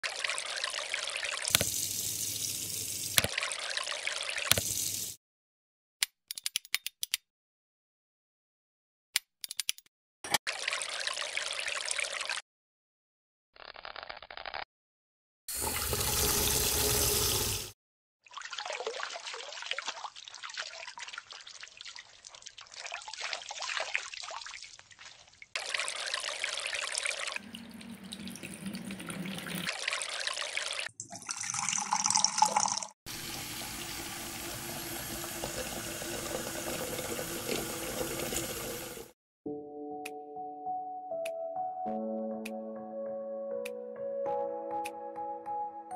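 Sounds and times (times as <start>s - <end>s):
faucet water running and splashing: 0.0s - 5.2s, 10.5s - 12.4s, 15.5s - 39.2s.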